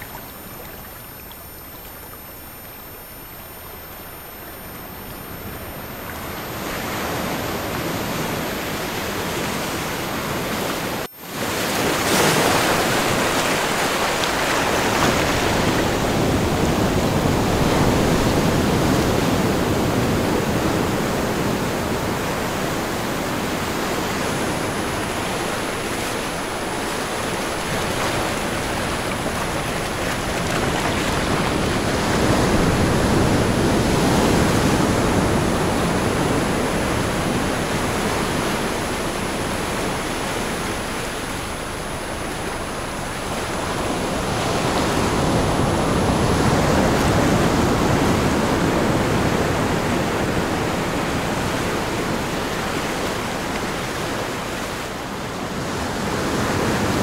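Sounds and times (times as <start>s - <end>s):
high-pitched tone: 0.0s - 11.1s
ocean waves: 0.0s - 57.0s.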